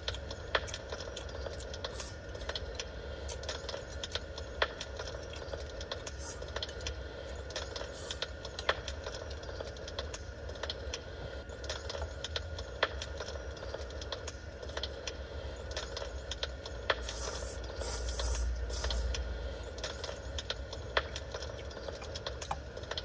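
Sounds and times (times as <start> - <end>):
steady low hum: 0.0 - 23.0
wood fire crackling: 0.0 - 23.0
loud hiss: 17.0 - 19.1.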